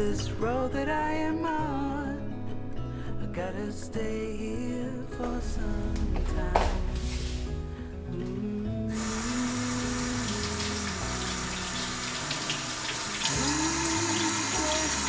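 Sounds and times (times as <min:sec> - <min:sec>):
water splashing from faucet: 0:08.9 - 0:15.0.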